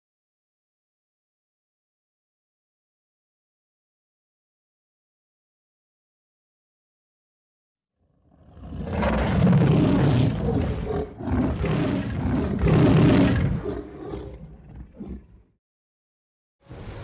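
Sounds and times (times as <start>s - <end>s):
lion roaring: 8.2s - 15.6s
lion grunting: 8.5s - 15.5s.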